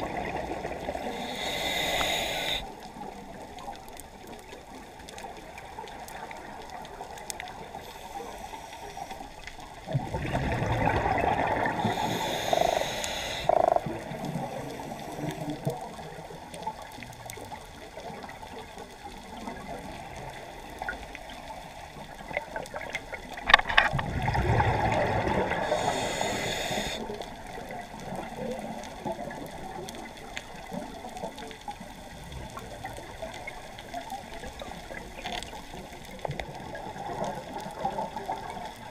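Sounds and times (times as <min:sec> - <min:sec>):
diver breathing through regulator: 0:01.0 - 0:02.7, 0:11.6 - 0:15.4, 0:25.3 - 0:27.1.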